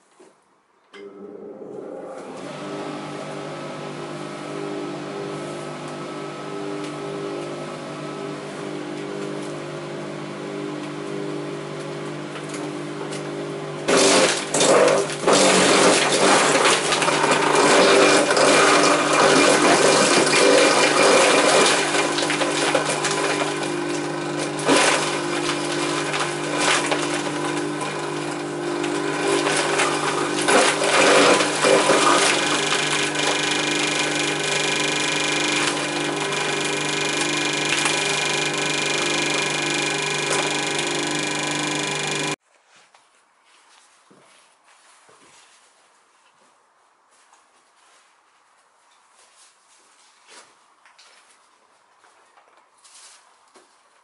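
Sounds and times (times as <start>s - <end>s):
shredder motor humming: 1.0s - 42.4s
branches crunching in shredder: 13.9s - 36.9s.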